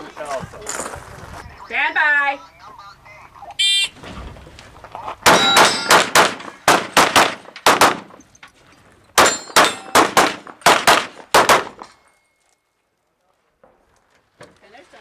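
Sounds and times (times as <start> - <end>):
rapid handgun fire: 5.2 - 8.2, 9.2 - 11.8.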